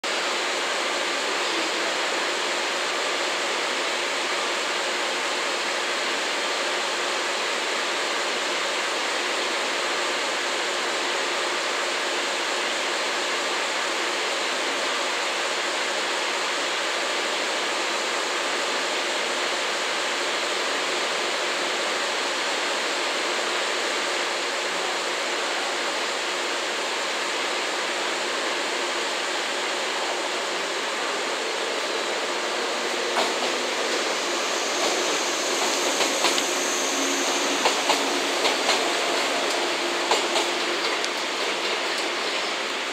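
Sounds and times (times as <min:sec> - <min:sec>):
steady rushing noise: 0:29.1 - 0:42.9.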